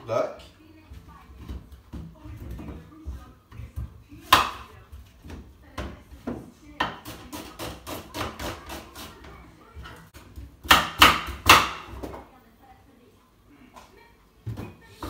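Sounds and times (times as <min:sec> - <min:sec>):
knife chopping on wooden board: 0:04.2 - 0:04.7, 0:05.3 - 0:09.2, 0:10.6 - 0:12.1.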